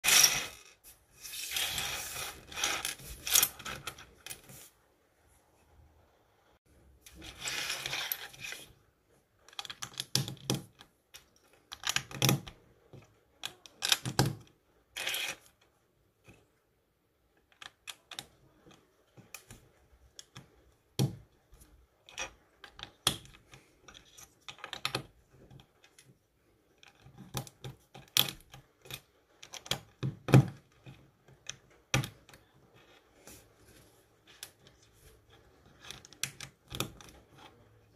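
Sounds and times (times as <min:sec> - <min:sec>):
plastic bricks clicking and tapping: 0:09.4 - 0:15.2, 0:35.7 - 0:37.6.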